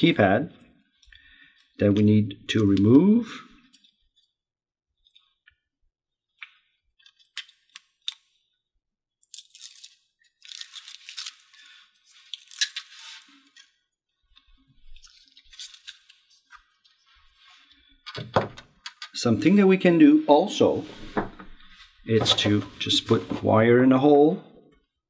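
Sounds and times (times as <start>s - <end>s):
tape peeling crackle: 9.3s - 13.5s, 15.0s - 16.7s.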